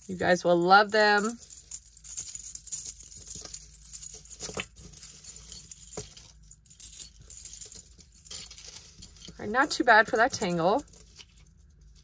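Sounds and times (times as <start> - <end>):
jewelry chains jingling: 0.0 - 12.0.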